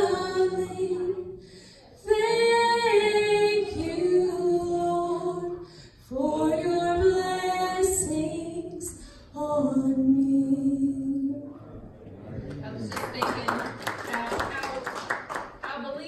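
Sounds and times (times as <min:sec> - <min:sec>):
woman singing gospel song: 0:00.0 - 0:01.4, 0:02.0 - 0:11.6
singer breathing: 0:01.3 - 0:02.0, 0:05.6 - 0:06.1, 0:08.9 - 0:09.4.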